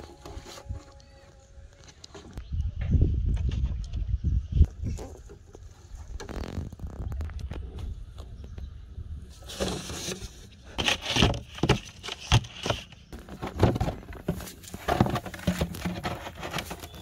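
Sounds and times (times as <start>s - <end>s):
plastic bottles knocking and scraping: 9.4s - 17.0s
rustling plastic: 9.4s - 17.0s.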